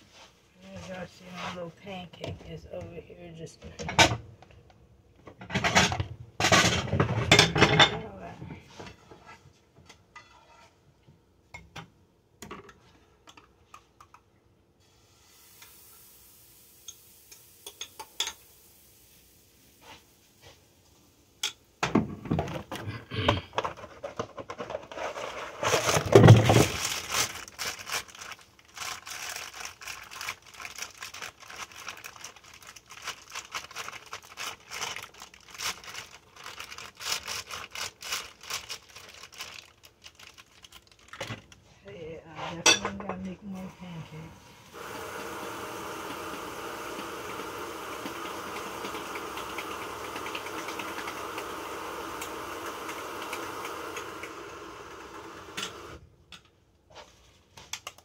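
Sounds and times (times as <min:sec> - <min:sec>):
crackling and rustling: 0:23.4 - 0:41.9.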